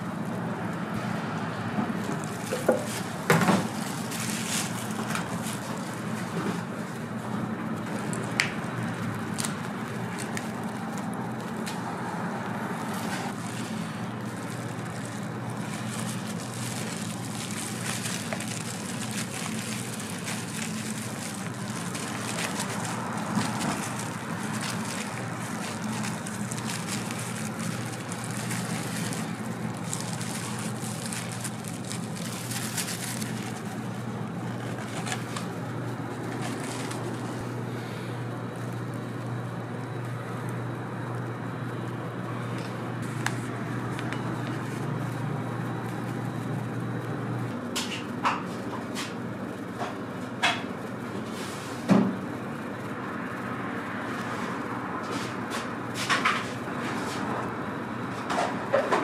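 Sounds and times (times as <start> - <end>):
background hum: 1.8 - 51.0
paper rustling and crinkling: 2.0 - 37.8, 42.4 - 46.6.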